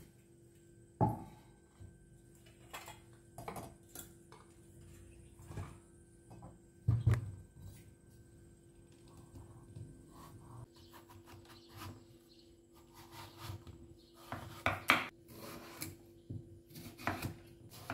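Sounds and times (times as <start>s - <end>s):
objects knocking and thudding: 2.5s - 7.6s.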